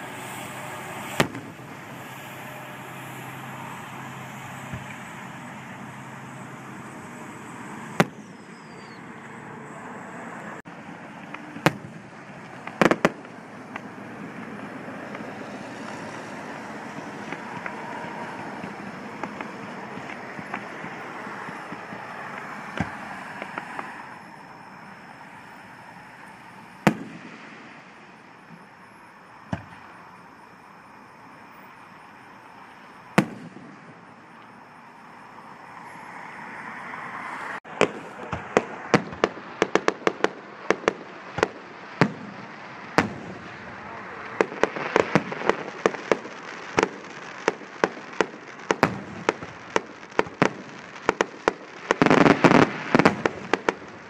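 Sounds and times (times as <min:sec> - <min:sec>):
firework shells banging: 0:00.0 - 0:09.0, 0:11.0 - 0:24.2, 0:37.7 - 0:54.0
rapid barrage of firework bangs: 0:00.0 - 0:09.0, 0:10.7 - 0:30.0, 0:33.0 - 0:34.3, 0:37.7 - 0:54.0
ground fountain firework hissing: 0:00.0 - 0:54.0.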